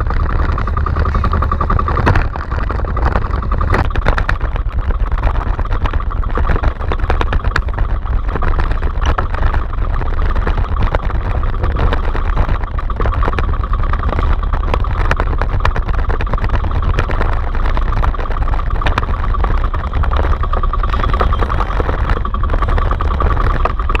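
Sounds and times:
boat engine running: 0:00.0 - 0:24.0.

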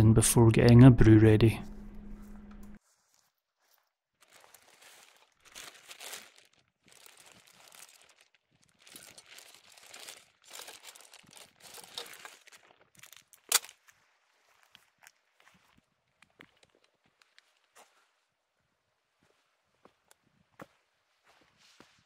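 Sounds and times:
crinkly rustling of packaging: 0:02.8 - 0:17.8.

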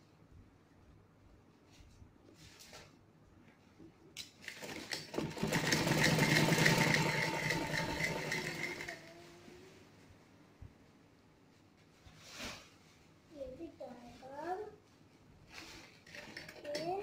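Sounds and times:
sewing machine stitching: 0:04.4 - 0:09.2, 0:16.0 - 0:17.0.

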